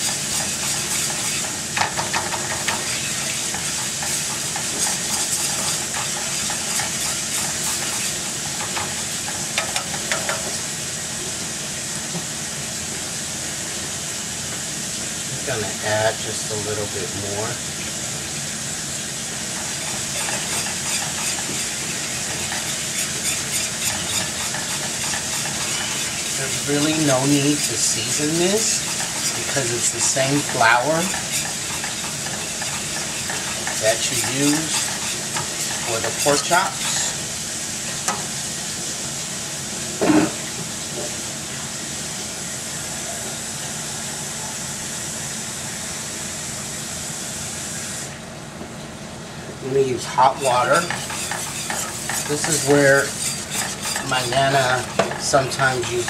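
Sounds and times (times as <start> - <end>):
whisk scraping a pan: 0.0 - 10.6, 19.4 - 38.4, 49.7 - 56.0
drippings sizzling in a skillet: 0.0 - 43.0, 49.7 - 56.0.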